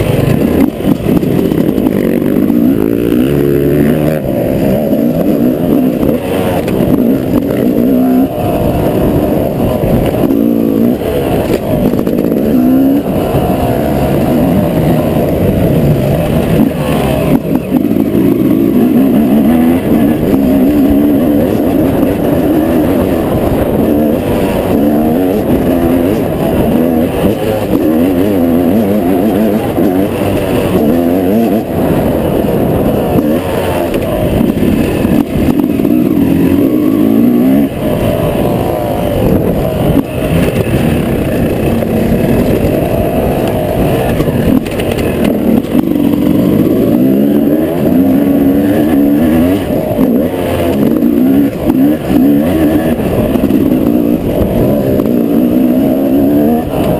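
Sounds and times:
motocross engine revving: 0:00.0 - 0:56.9.

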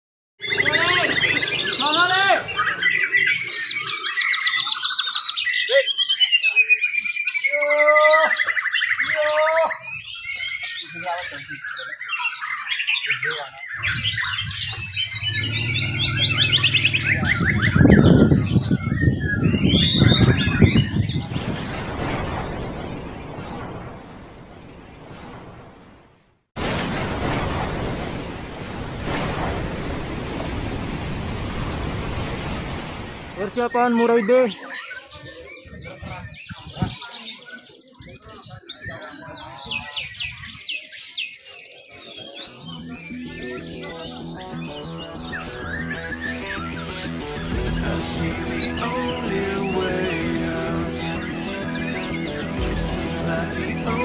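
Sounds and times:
birds singing trills and whistles: 0:00.4 - 0:24.0, 0:32.8 - 0:54.0
storm rushing noise: 0:13.9 - 0:33.7.

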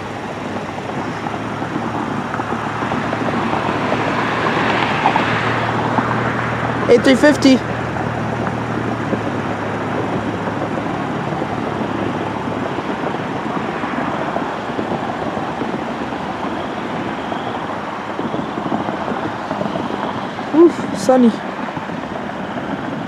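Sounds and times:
jet engines roaring overhead: 0:00.0 - 0:23.0.

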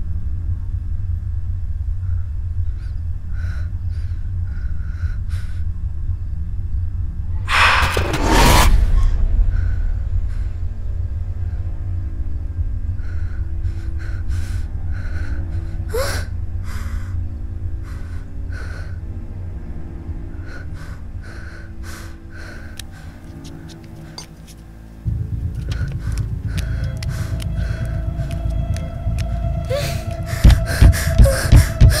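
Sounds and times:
low rumbling drone: 0:00.0 - 0:32.0
rising whoosh: 0:07.3 - 0:11.3.

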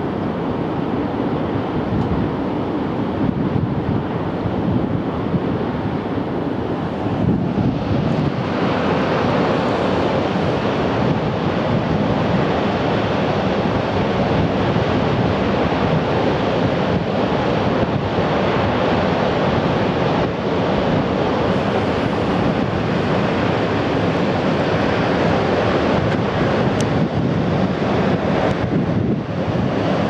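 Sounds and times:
rushing water from dam outlet: 0:00.0 - 0:30.0
wind buffeting microphone: 0:00.0 - 0:30.0.

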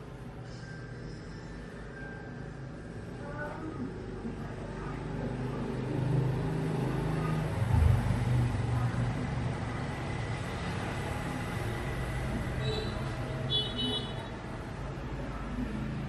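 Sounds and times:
road traffic rumble: 0:00.0 - 0:16.0
motor vehicle passing: 0:03.9 - 0:13.5.

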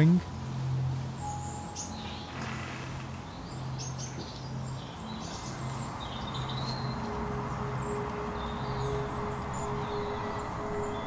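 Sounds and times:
steady higher tone: 0:01.2 - 0:02.5, 0:05.4 - 0:11.0
small birds chirping: 0:01.2 - 0:11.0
low droning hum: 0:05.4 - 0:11.0.

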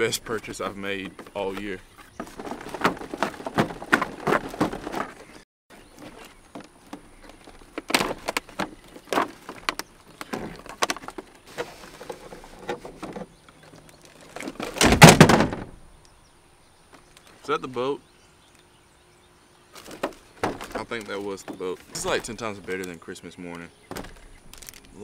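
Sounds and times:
packaging rustling and crinkling: 0:24.0 - 0:25.0.

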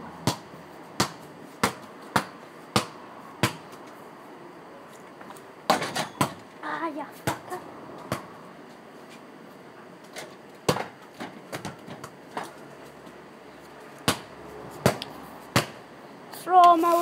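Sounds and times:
basketball bouncing and hitting hoop: 0:00.2 - 0:03.7, 0:05.7 - 0:06.4, 0:07.2 - 0:08.3, 0:10.2 - 0:12.6, 0:14.0 - 0:15.8.

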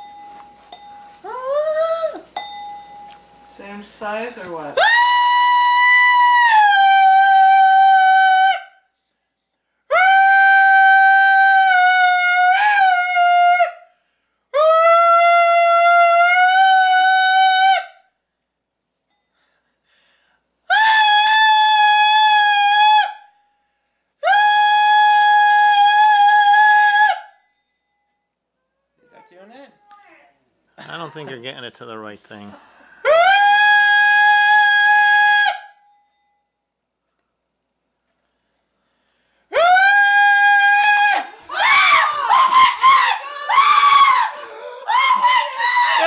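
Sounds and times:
breaths: 0:09.1 - 0:09.9, 0:13.9 - 0:14.5, 0:19.2 - 0:20.6, 0:23.4 - 0:24.2, 0:32.5 - 0:33.1, 0:38.1 - 0:39.5, 0:43.2 - 0:43.6, 0:44.3 - 0:44.9.

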